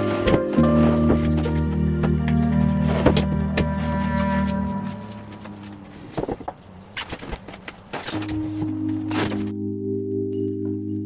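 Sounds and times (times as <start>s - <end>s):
background music: 0.0s - 5.8s, 8.2s - 11.0s.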